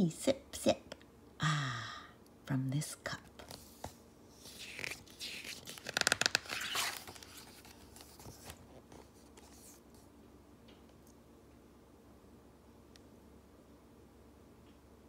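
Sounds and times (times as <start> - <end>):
paper page turning: 3.4 - 10.0.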